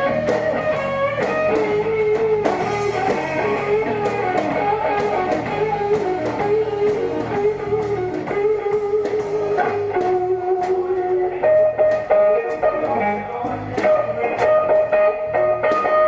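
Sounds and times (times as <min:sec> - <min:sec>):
drum and cymbal hits: 0:00.0 - 0:10.9
bass guitar: 0:00.0 - 0:16.0
electric guitar lead notes: 0:00.0 - 0:16.0.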